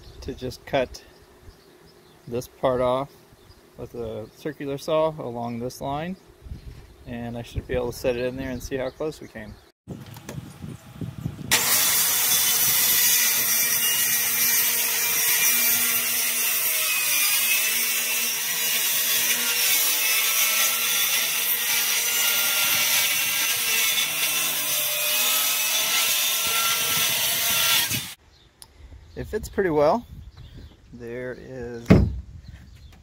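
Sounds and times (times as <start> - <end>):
circular saw cutting plywood: 11.5 - 28.2.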